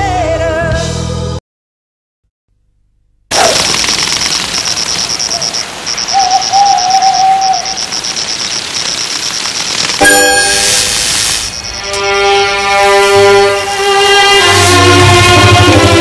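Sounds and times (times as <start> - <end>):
insects trilling: 3.4 - 12.8
wavering hoot: 5.3 - 8.0
dense hiss: 10.2 - 15.0.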